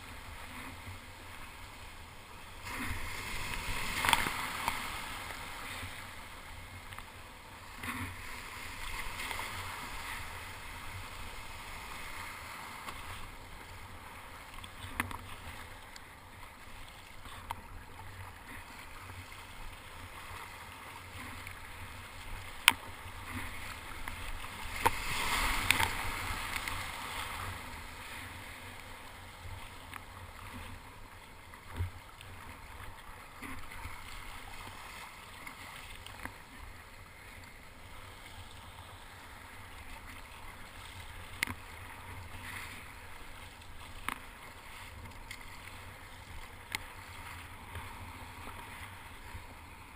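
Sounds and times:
water splashing: 0.0s - 49.6s
paddle strokes in water: 0.0s - 49.9s.

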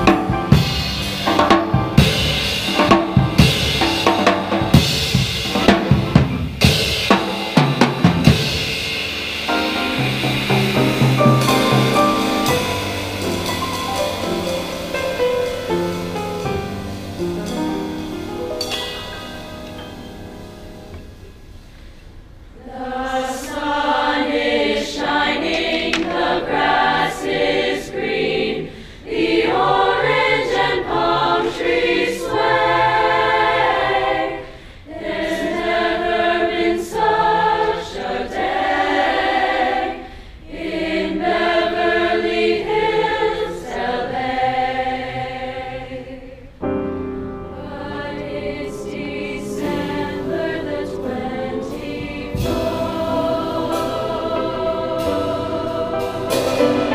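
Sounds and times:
school choir singing: 22.6s - 46.6s, 47.5s - 56.9s.

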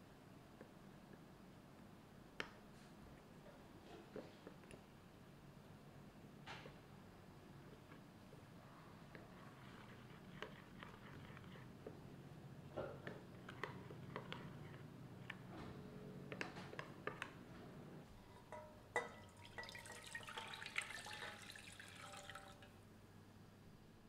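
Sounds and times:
spoon stirring in glass bowl: 9.1s - 12.0s, 12.9s - 15.5s, 18.2s - 22.5s
liquid poured into metal pot: 18.4s - 22.7s.

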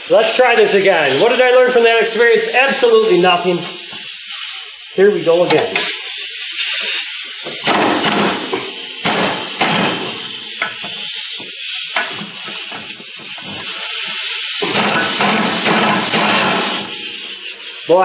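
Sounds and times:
air hiss: 0.0s - 18.0s
impact wrench hammering: 7.4s - 13.6s, 14.6s - 17.2s.

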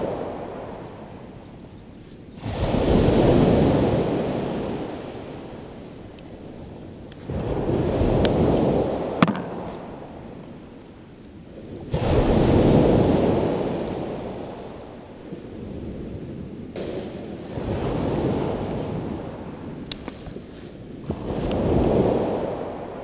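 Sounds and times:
waves breaking on shingle: 7.2s - 10.0s.

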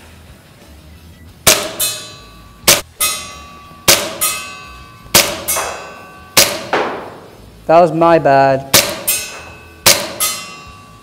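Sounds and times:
airsoft pistol shots: 1.4s - 2.0s, 2.7s - 2.9s, 3.9s - 4.4s, 5.1s - 7.3s, 8.7s - 10.4s
pellet clanging on steel target: 1.4s - 7.3s, 8.7s - 11.0s.

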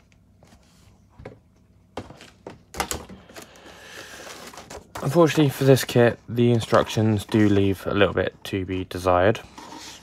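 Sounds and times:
paper and plastic bags crinkling: 2.0s - 8.2s.

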